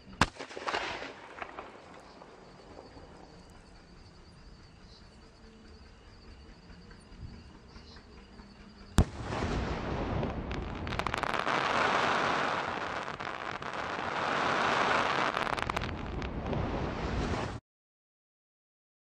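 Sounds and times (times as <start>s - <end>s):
firework crackling and hissing: 0.2s - 3.3s, 9.0s - 17.6s.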